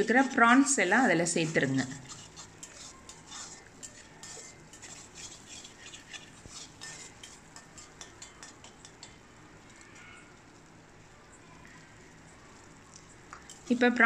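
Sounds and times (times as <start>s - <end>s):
metal spatula scraping iron pan: 0.0s - 9.1s.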